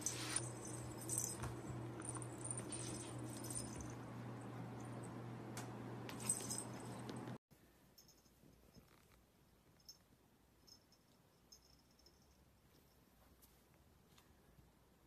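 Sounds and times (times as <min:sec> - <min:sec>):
cats scuffling on rug: 0:00.0 - 0:04.0
steady low hum: 0:00.0 - 0:07.4.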